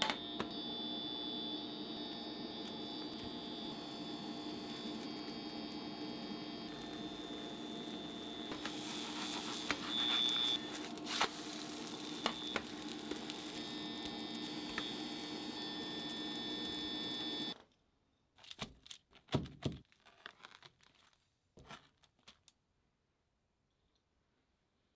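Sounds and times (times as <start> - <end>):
steady hum: 0.2 - 17.6
batter sizzling in oil: 1.7 - 17.6
high tone: 2.0 - 17.6.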